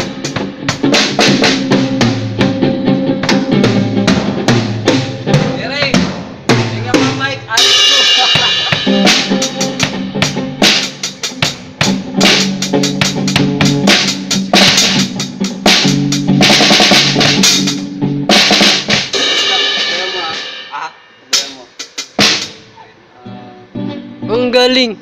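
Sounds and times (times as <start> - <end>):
drums played hard: 0.0 - 22.8
cymbal crashes: 7.6 - 11.5, 18.4 - 22.7.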